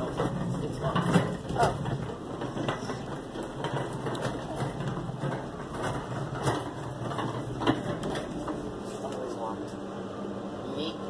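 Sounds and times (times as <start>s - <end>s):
cart wheels rattling on concrete: 0.0s - 8.8s.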